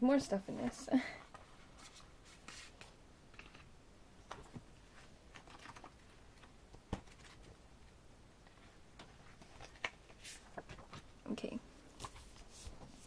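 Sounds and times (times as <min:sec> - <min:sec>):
paper and card rustling: 0:04.3 - 0:07.6, 0:08.4 - 0:11.1.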